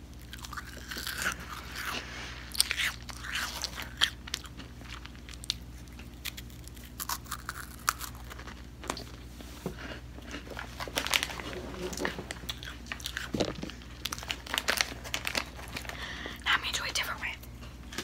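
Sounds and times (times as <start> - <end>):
crunching snack: 0.1 - 9.2, 9.8 - 16.0
quiet chewing: 0.2 - 14.3.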